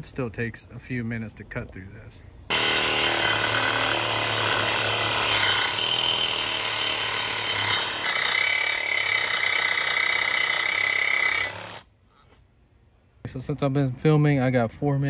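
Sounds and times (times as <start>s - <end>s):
reciprocating saw cutting steel pipe: 2.5s - 11.9s.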